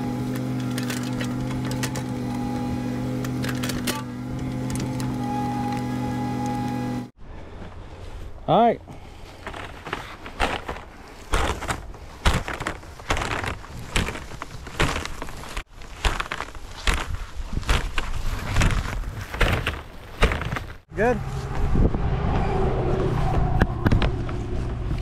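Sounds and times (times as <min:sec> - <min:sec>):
footsteps on dirt and grass: 0:04.3 - 0:21.7
plastic wrapping rustling: 0:09.2 - 0:20.8.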